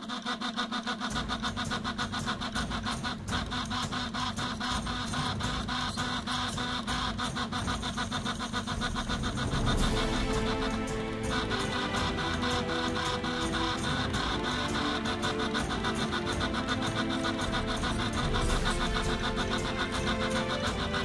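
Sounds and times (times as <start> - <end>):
stepper motors buzzing: 0.0 - 21.0
steady hum: 1.1 - 21.0.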